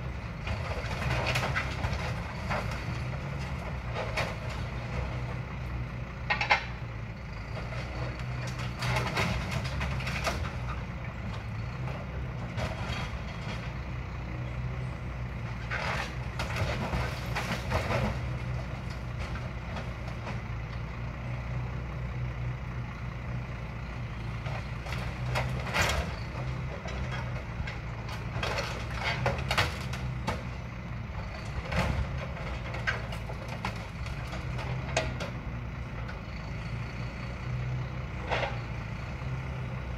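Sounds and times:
truck engine running: 0:00.0 - 0:39.9
scrap metal clanking and scraping: 0:15.5 - 0:20.4, 0:24.9 - 0:30.5.

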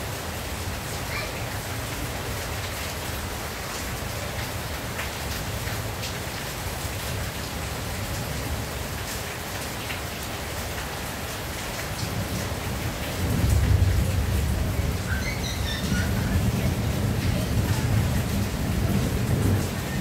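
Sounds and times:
rain on a tin roof: 0:00.0 - 0:20.0
thunder rumbling: 0:12.1 - 0:20.0.

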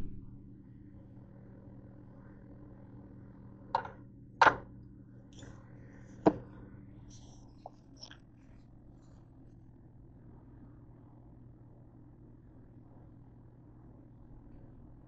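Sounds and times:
steady low hum: 0:00.0 - 0:15.0
spoon knocking on pot: 0:03.8 - 0:04.6.

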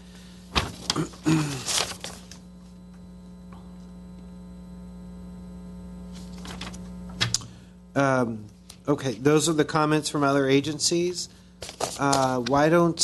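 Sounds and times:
electrical hum: 0:00.0 - 0:13.0
paper rustling and shuffling: 0:00.5 - 0:02.5, 0:06.1 - 0:06.9, 0:08.6 - 0:11.0, 0:11.6 - 0:13.0.

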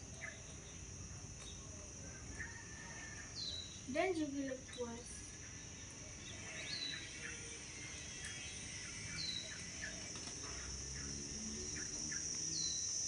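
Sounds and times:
birds chirping: 0:00.0 - 0:13.0
high-pitched insect drone: 0:00.0 - 0:13.0.

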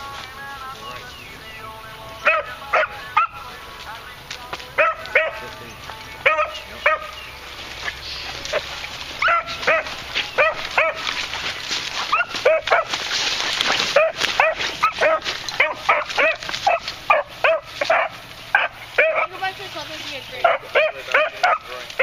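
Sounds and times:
rustling in brush: 0:06.6 - 0:22.0
dog barking in quick yelps: 0:14.0 - 0:19.3.

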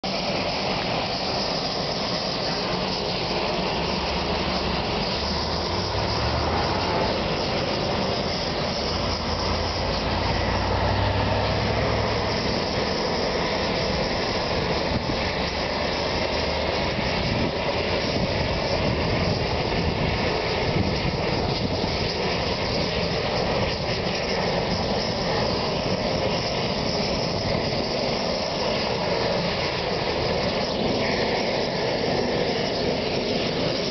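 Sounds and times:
city street traffic rumble: 0:00.0 - 0:33.9.

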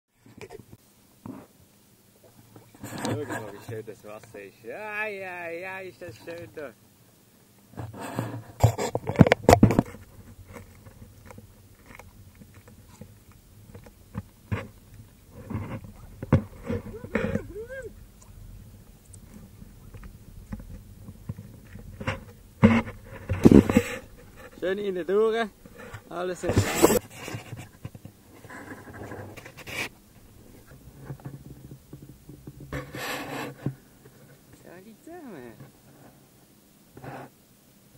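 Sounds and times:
faint low hum: 0:00.2 - 0:37.9
faint ticks: 0:06.0 - 0:24.7
paddle swishing water: 0:07.8 - 0:34.5.

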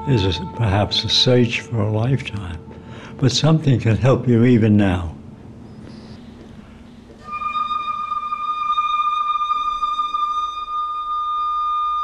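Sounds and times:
flute holding high note: 0:00.0 - 0:03.0, 0:07.2 - 0:12.0.

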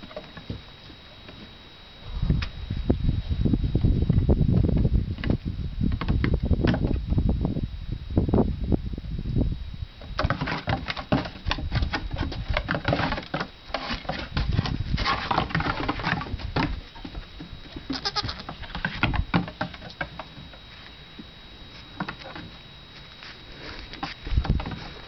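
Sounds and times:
goat kids bleating: 0:17.9 - 0:18.8.

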